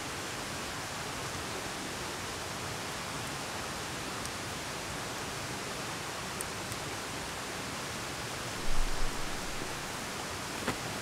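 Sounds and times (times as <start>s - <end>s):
outdoor rushing hiss: 8.6s - 11.0s.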